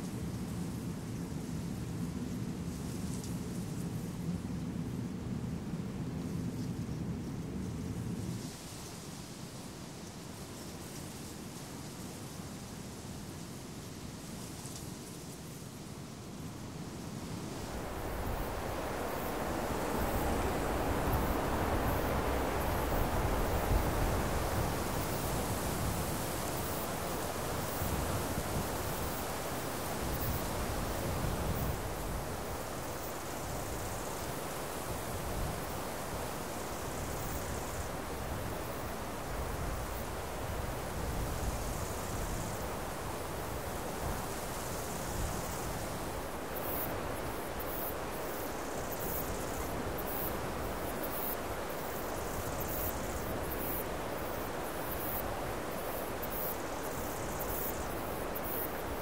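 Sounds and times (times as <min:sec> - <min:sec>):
faint high hiss: 0:06.5 - 0:59.0
rushing outdoor ambience: 0:17.0 - 0:59.0.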